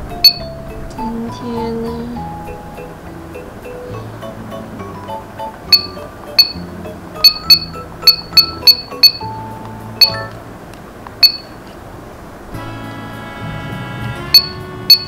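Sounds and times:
background music: 0:00.0 - 0:10.5, 0:12.5 - 0:15.0
high electronic ping: 0:00.2 - 0:00.5, 0:05.7 - 0:06.6, 0:07.2 - 0:09.3, 0:10.0 - 0:10.3, 0:11.2 - 0:11.6, 0:14.4 - 0:15.0.

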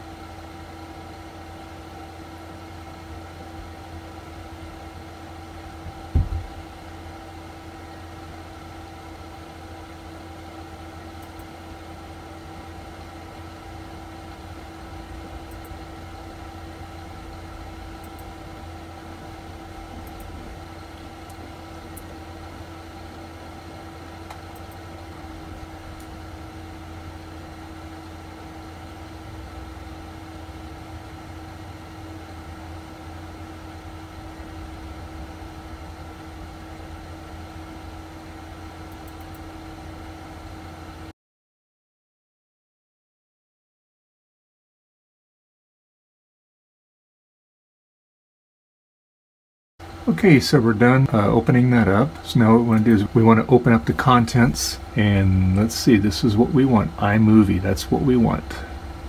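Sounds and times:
steady machine hum: 0:00.0 - 0:41.1, 0:49.8 - 0:59.0
low thump: 0:06.1 - 0:06.6.

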